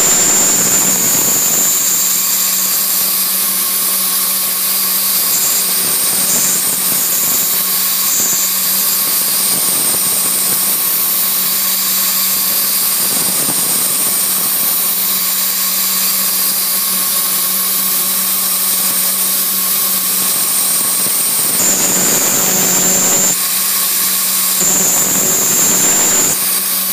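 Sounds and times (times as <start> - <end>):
high-pitched tone: 0.0 - 2.2
hiss of cutting: 0.0 - 3.4, 20.2 - 26.9
milling machine spindle whine: 0.0 - 26.9.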